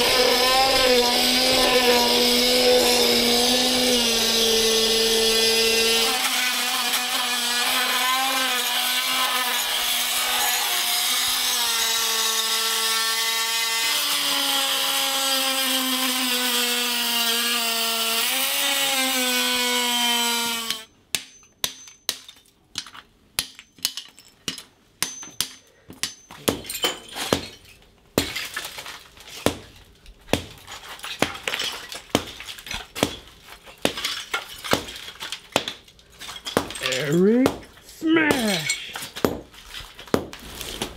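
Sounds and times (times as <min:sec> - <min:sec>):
power tool cutting tile: 0:00.0 - 0:20.8
tiles cracking and knocking: 0:21.2 - 0:40.9.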